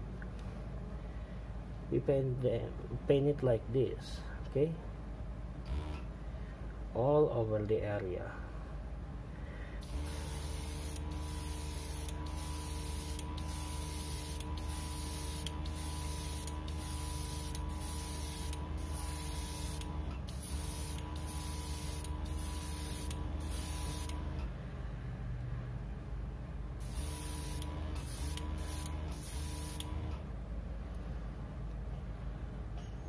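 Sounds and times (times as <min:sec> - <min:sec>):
air compressor hum: 0:05.5 - 0:06.9, 0:08.5 - 0:25.4, 0:26.7 - 0:33.0
airbrush spraying bursts: 0:09.8 - 0:24.2, 0:26.8 - 0:30.1.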